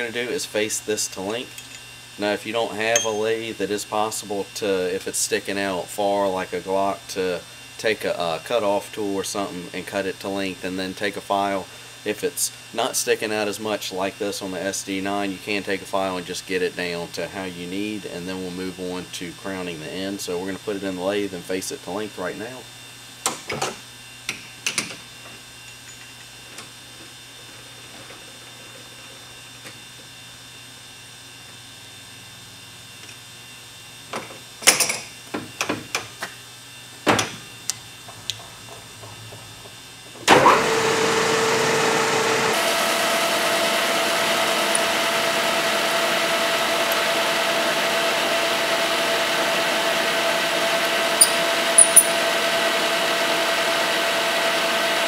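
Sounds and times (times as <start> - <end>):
lathe running: 40.2 - 55.0.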